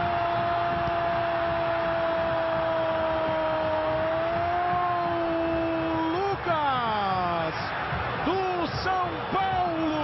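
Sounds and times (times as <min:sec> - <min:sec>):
commentator shouting goal: 0:04.2 - 0:07.6, 0:08.2 - 0:10.0.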